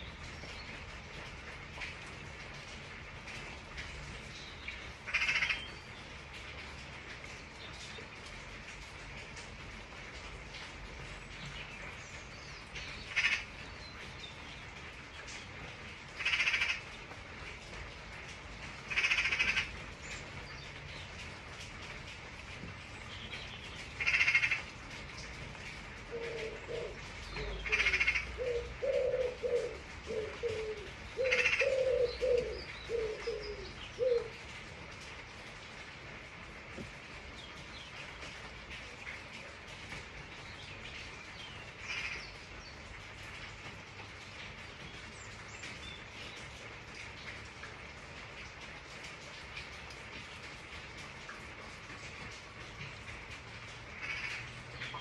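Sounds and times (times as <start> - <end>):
steady rain: 0.0 - 55.0
harsh bird calls: 5.1 - 5.9, 26.1 - 34.3
pigeon cooing: 26.1 - 34.4.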